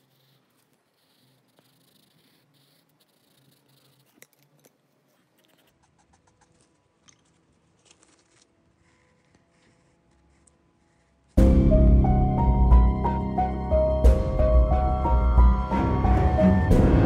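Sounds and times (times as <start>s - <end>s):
pencil scratching on paper: 0.0s - 6.7s, 8.8s - 11.4s.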